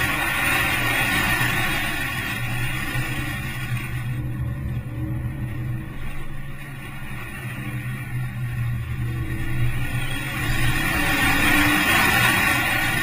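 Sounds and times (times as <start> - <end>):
car engine running hard: 0.0 - 13.0.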